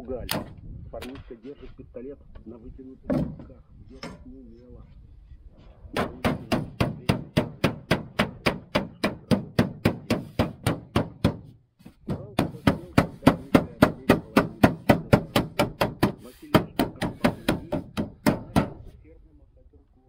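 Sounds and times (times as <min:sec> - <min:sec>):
hammer tapping sheet metal: 0:06.0 - 0:18.9.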